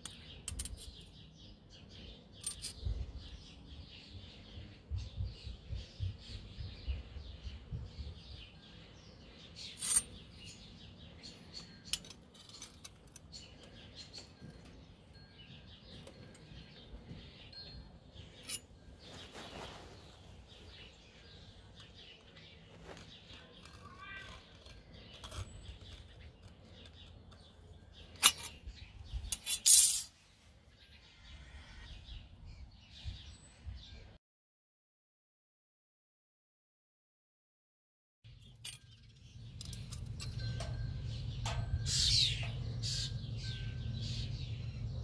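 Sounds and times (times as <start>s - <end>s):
metal tools clicking on steel: 0.0s - 1.2s, 2.4s - 2.8s, 9.6s - 10.5s, 11.5s - 16.7s, 17.5s - 18.7s, 23.4s - 30.1s, 38.4s - 42.8s
birds chirping: 0.0s - 34.2s, 38.3s - 45.0s
scriber scraping steel: 9.6s - 10.6s, 11.5s - 14.6s, 18.2s - 21.4s, 22.8s - 30.3s.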